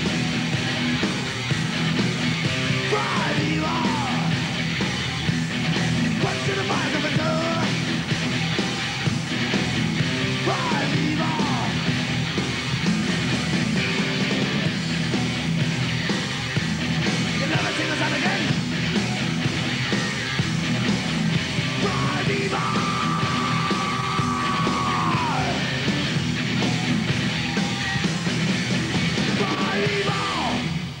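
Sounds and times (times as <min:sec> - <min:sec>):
heavy metal band playing: 0:00.0 - 0:31.0
singer yelling: 0:02.7 - 0:04.4, 0:06.1 - 0:07.8, 0:10.3 - 0:11.9, 0:17.4 - 0:18.6, 0:21.7 - 0:25.9, 0:29.3 - 0:30.8.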